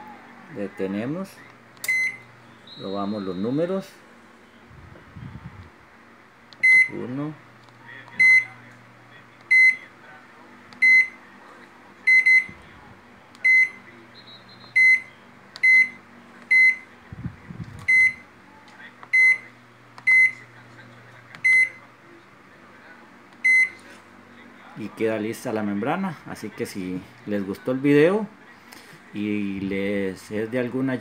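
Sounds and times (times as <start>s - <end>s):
faint low hum: 0.0s - 31.0s
microwave keypad beeps: 1.8s - 3.6s, 6.6s - 7.0s, 8.1s - 8.6s, 9.5s - 9.8s, 10.8s - 11.2s, 12.1s - 12.6s, 13.4s - 16.9s, 17.8s - 18.2s, 19.1s - 20.4s, 21.4s - 21.8s, 23.4s - 23.8s.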